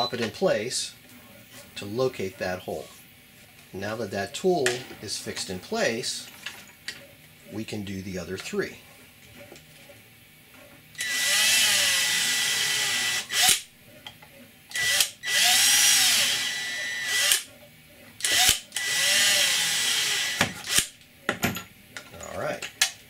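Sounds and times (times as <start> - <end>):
cordless drill whining: 11.0 - 13.6, 14.7 - 17.5, 18.2 - 20.9.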